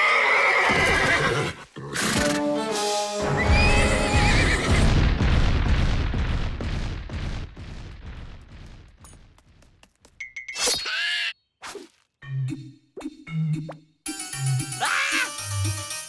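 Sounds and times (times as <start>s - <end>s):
loud rumbling clatter: 4.7s - 9.4s
cartoon whinny-like cry: 14.8s - 15.4s.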